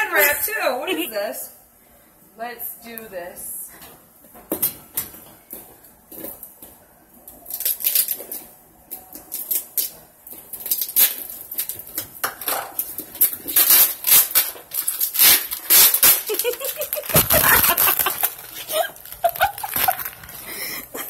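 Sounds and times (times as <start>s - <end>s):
plastic wrap and tape crinkling: 4.5s - 21.0s
scissors cutting package: 13.1s - 20.5s.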